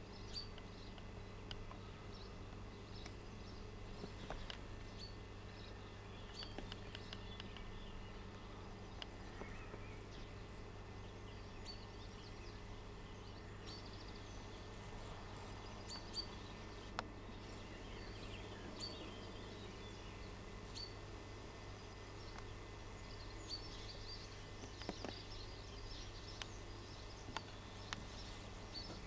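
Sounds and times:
bird chirps: 0:00.0 - 0:21.0
steady low hum: 0:00.0 - 0:29.0
small clicks: 0:04.0 - 0:04.7, 0:06.3 - 0:07.7.

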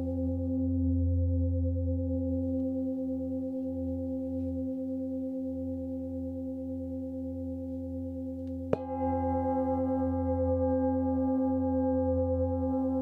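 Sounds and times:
singing bowl ringing: 0:08.7 - 0:13.0
singing bowl struck: 0:08.7 - 0:13.0.

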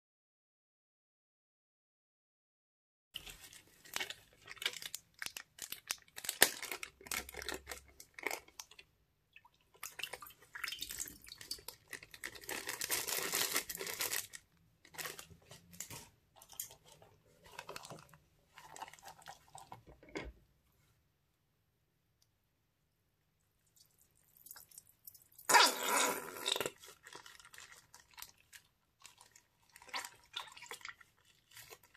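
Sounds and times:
plastic bags crinkling: 0:03.2 - 0:08.8, 0:10.9 - 0:19.7.

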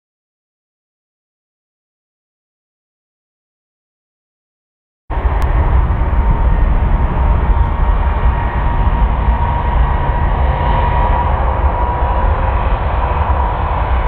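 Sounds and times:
jet engines running: 0:05.1 - 0:14.0.

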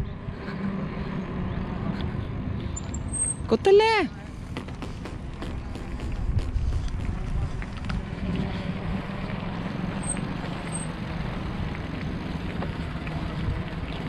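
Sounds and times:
bicycle rolling on asphalt: 0:00.0 - 0:14.0
wind buffeting microphone: 0:04.8 - 0:10.6.

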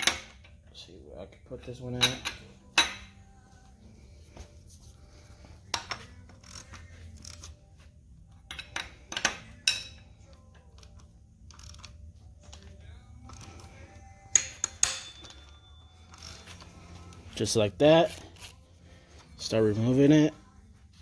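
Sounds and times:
metal tools clinking: 0:08.4 - 0:11.0, 0:14.3 - 0:16.7.

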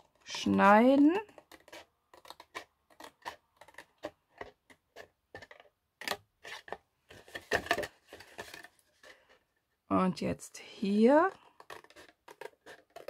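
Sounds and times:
scissors snipping cardstock: 0:00.0 - 0:06.8, 0:11.2 - 0:13.0.

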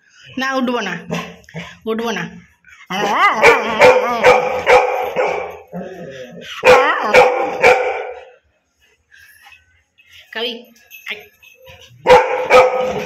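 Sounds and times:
dog barking: 0:03.3 - 0:05.7, 0:06.6 - 0:08.3, 0:12.0 - 0:13.0.

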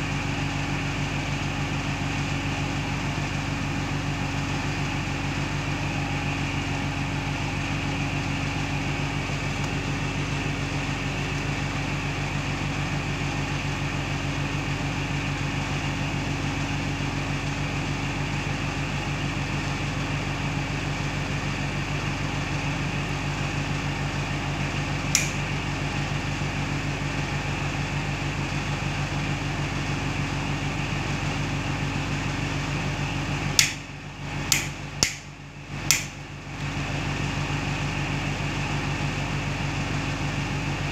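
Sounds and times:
low mechanical hum: 0:00.0 - 0:40.9
rocker switch clicking: 0:25.1 - 0:25.4, 0:33.6 - 0:33.9, 0:34.5 - 0:35.3, 0:35.9 - 0:36.2
sharp click: 0:25.1 - 0:25.4, 0:33.6 - 0:33.9, 0:34.5 - 0:35.3, 0:35.9 - 0:36.2.

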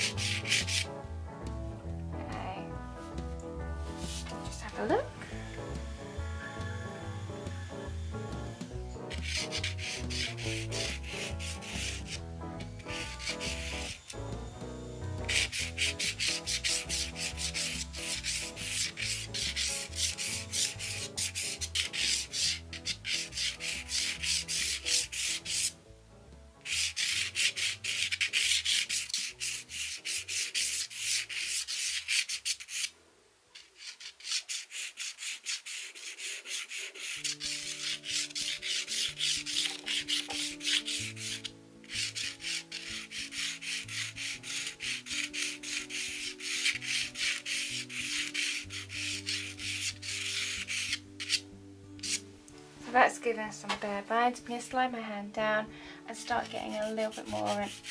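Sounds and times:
pencil scratching on paper: 0:00.0 - 0:00.9, 0:03.8 - 0:05.0, 0:08.5 - 0:14.2, 0:15.2 - 0:25.8, 0:26.6 - 0:32.9, 0:33.6 - 0:51.4, 0:52.0 - 0:52.2, 0:56.2 - 0:57.9.

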